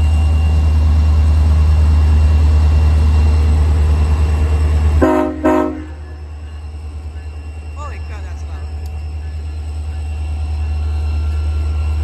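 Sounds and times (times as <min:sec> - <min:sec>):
diesel locomotive rumble: 0:00.0 - 0:12.0
train air horn blasts: 0:05.0 - 0:06.0.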